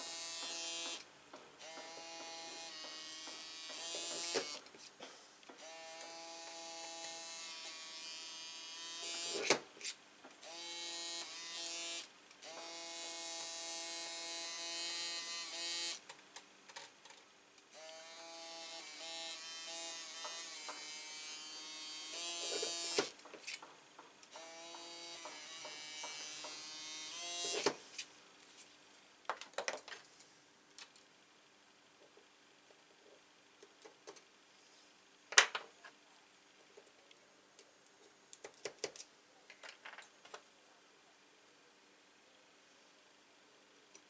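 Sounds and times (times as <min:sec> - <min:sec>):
electric motor tool buzzing: 0:00.0 - 0:01.0, 0:01.6 - 0:04.6, 0:05.6 - 0:09.5, 0:10.4 - 0:16.0, 0:17.7 - 0:23.1, 0:24.3 - 0:27.8.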